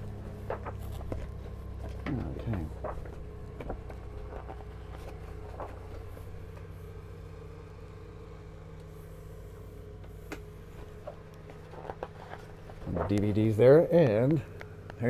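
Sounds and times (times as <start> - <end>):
paper pages rustling: 0.0 - 6.8, 10.7 - 13.6
steady low hum: 0.0 - 15.0.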